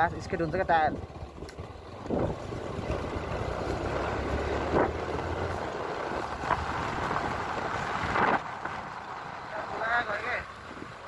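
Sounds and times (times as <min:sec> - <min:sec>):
motorcycle engine running: 0:00.0 - 0:11.0
wind rushing over microphone: 0:02.0 - 0:02.6, 0:04.2 - 0:09.5.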